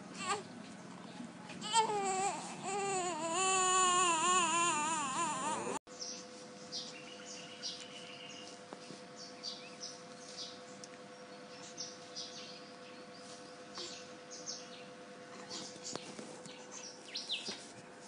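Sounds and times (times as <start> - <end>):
steady faint hum: 0.0 - 18.0
small birds chirping: 5.9 - 17.6.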